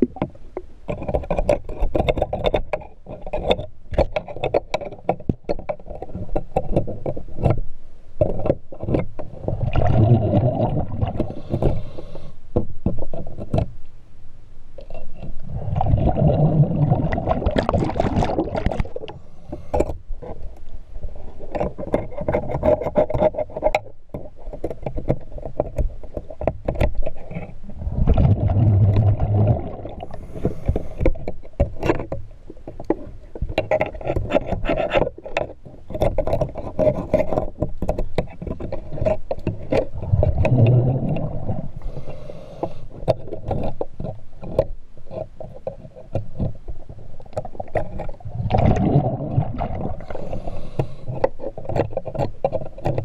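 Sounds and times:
sharp clicks and knocks: 0:00.0 - 0:11.8, 0:12.5 - 0:13.8, 0:21.4 - 0:41.6, 0:42.6 - 0:53.0
underwater bubbles rushing: 0:09.4 - 0:11.6, 0:15.4 - 0:19.2, 0:27.8 - 0:30.2, 0:39.8 - 0:41.8, 0:48.1 - 0:50.6.

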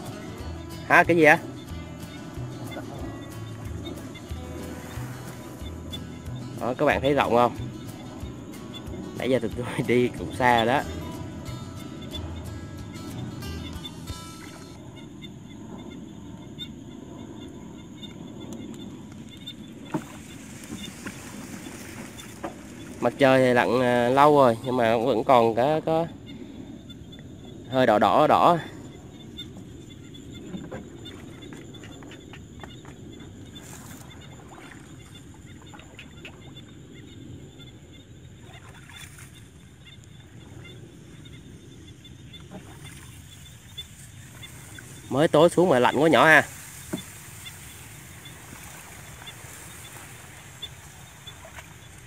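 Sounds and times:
steady low rumble: 0:00.0 - 0:21.9
high-pitched chirping chorus: 0:00.0 - 0:52.0
paddle in water: 0:00.0 - 0:52.0.

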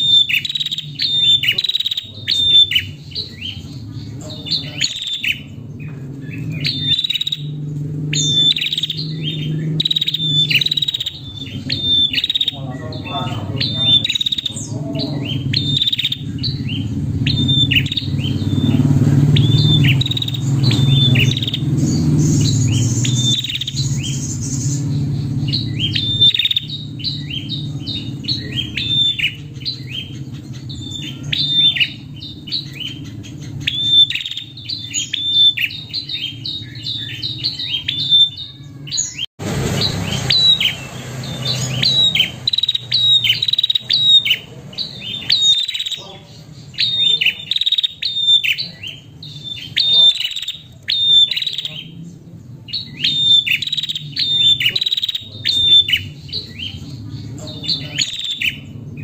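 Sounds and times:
steady low hum: 0:00.0 - 0:38.1
bird chirping rapidly: 0:00.0 - 0:59.0.

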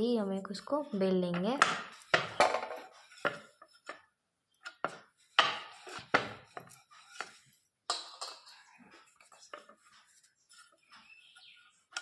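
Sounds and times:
rolling pin knocking on metal board: 0:01.3 - 0:03.4.

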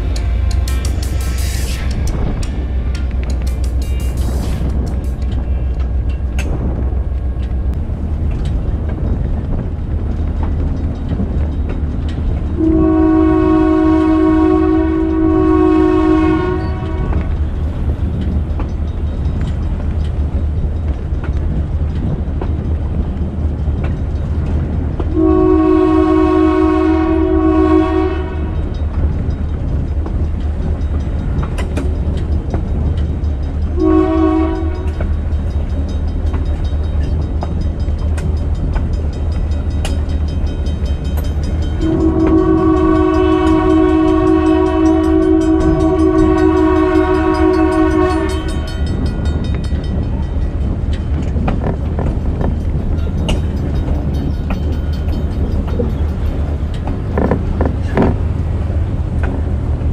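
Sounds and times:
low rumble of moving train: 0:00.0 - 0:59.9
locomotive horn blasts: 0:12.6 - 0:17.4, 0:25.1 - 0:28.7, 0:33.7 - 0:35.0, 0:41.8 - 0:48.9.

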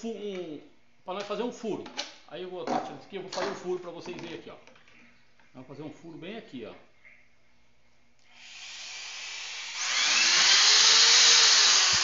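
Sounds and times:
electric drill boring into plastic: 0:08.3 - 0:12.0.

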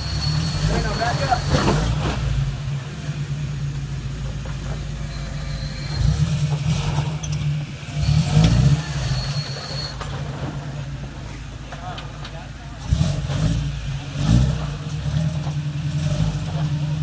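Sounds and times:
truck engine revving under load: 0:00.0 - 0:17.0.

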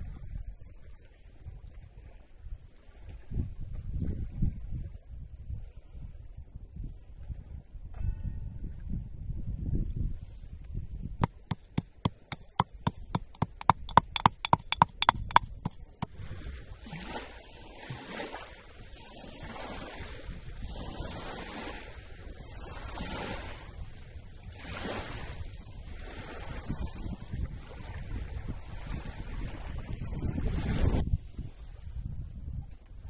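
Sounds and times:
waves lapping at shore: 0:11.2 - 0:31.0
sharp ringing clicks: 0:11.3 - 0:15.7.

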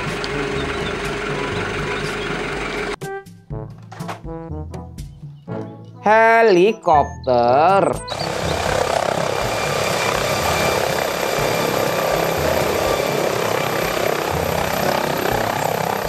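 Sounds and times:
helicopter hovering: 0:00.0 - 0:03.0, 0:07.7 - 0:16.0
rotor beat: 0:00.0 - 0:05.3, 0:07.6 - 0:16.0
faint high whine: 0:08.1 - 0:16.0.

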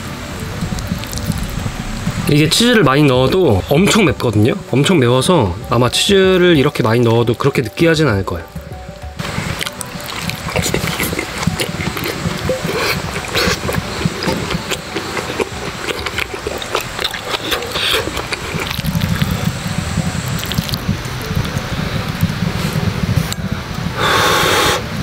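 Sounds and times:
low rumble: 0:00.0 - 0:17.4
rice sizzling and crackling: 0:00.0 - 0:25.0.

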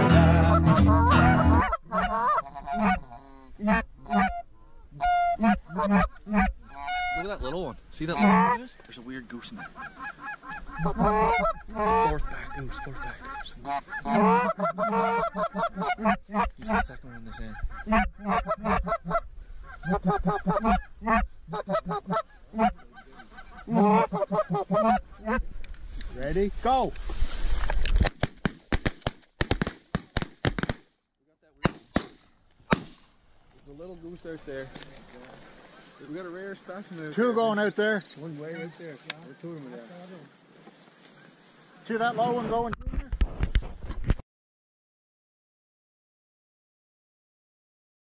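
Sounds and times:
acoustic guitar music: 0:00.0 - 0:01.7
geese honking: 0:00.0 - 0:25.6, 0:34.0 - 0:42.5.

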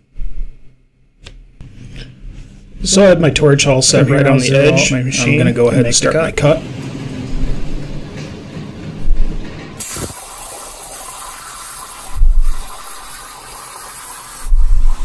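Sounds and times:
dull low thumps: 0:07.1 - 0:09.8
plasma torch cutting hiss: 0:09.8 - 0:15.0.

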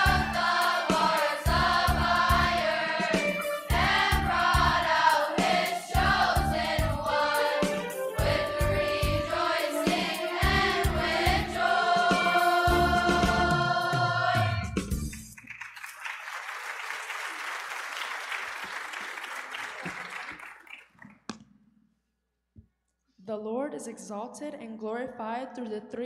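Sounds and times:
youth choir singing: 0:00.0 - 0:14.7
low rhythmic accompaniment: 0:00.0 - 0:15.4
audience applause: 0:15.2 - 0:21.2.

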